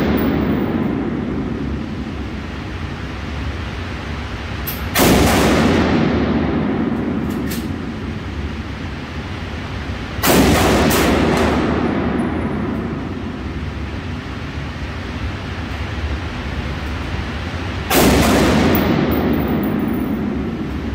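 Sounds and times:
rifle shots echoing indoors: 0.0s - 3.0s, 4.4s - 14.2s, 17.7s - 20.9s.

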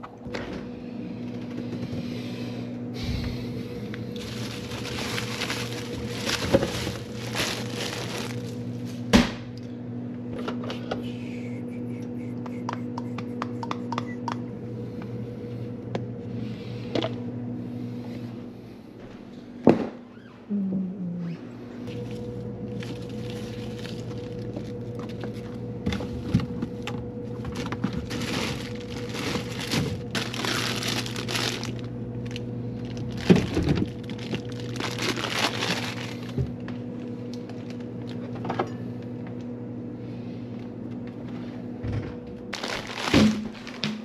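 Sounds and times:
electrical hum: 0.0s - 44.0s
scraping rustling food prep: 1.1s - 9.1s, 21.8s - 39.0s, 42.5s - 44.0s.

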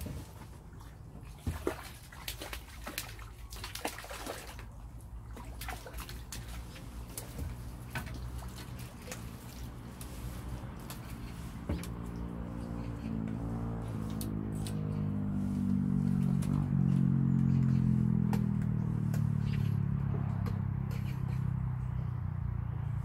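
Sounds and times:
low steady rumble: 0.0s - 23.0s
fish splashing in a net: 0.8s - 12.4s.

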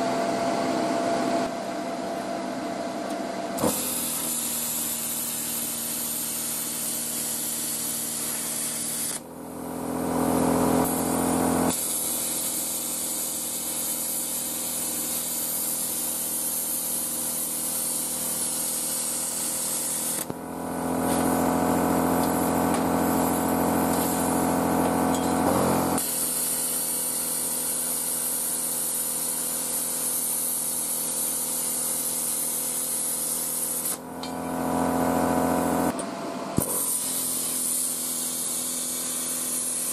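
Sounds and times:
compressor humming drone: 0.0s - 26.8s, 33.8s - 38.4s
plasma cutter hissing: 3.6s - 36.0s, 36.6s - 39.9s.

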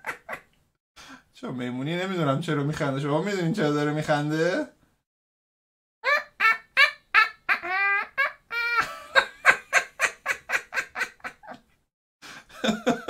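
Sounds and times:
man voicing high-pitched laugh: 6.1s - 11.6s.

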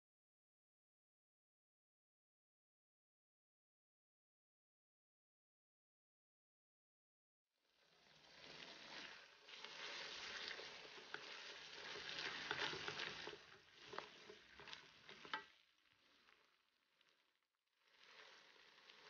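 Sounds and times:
paste sizzling in hot oil: 8.0s - 19.0s
spatula scraping a wok: 8.3s - 15.6s.

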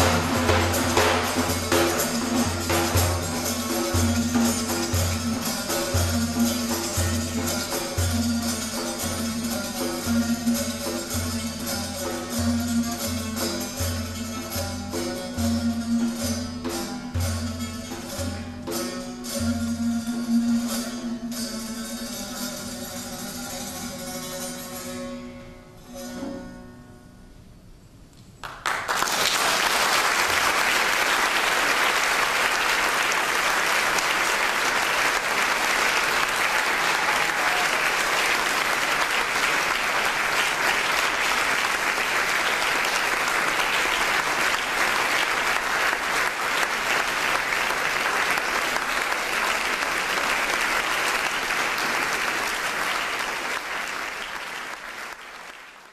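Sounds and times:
plucked lute notes: 0.0s - 27.4s
audience applause: 28.4s - 55.9s.

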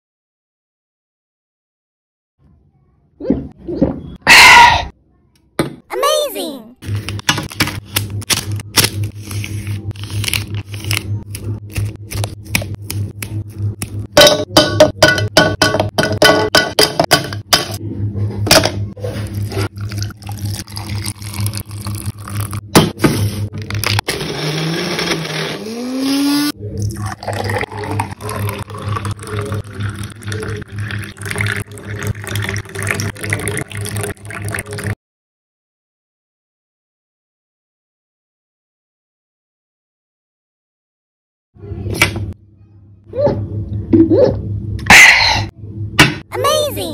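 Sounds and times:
liquid pouring: 19.2s - 22.7s, 26.8s - 35.0s
small blender whirring: 23.8s - 26.6s.

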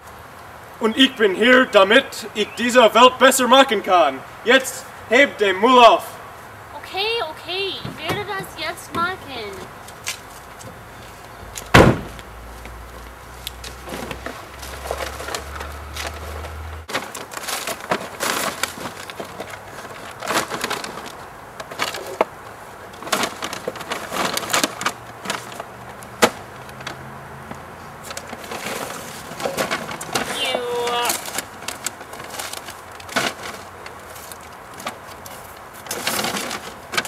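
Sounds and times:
litter clattering and rustling: 13.7s - 37.0s.

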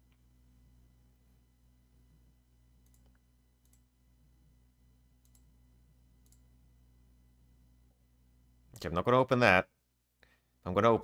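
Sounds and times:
low steady hum: 0.0s - 11.0s
faint computer mouse clicks: 2.8s - 3.9s, 5.2s - 5.5s, 6.2s - 6.5s.

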